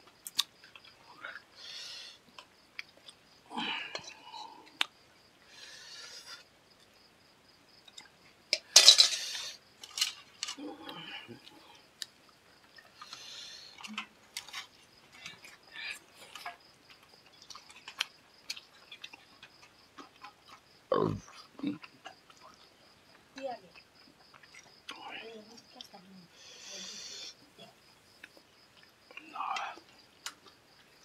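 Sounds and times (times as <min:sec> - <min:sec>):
eating sounds: 0:00.2 - 0:06.8, 0:07.8 - 0:31.0
clinks of plates: 0:08.6 - 0:09.3.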